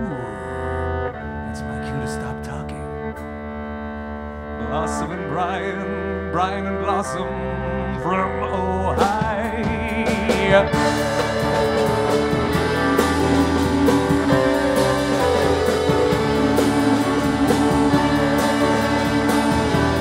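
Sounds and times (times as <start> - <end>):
upright bass: 0.0 - 20.0
electric guitar: 2.5 - 20.0
drums: 8.9 - 20.0.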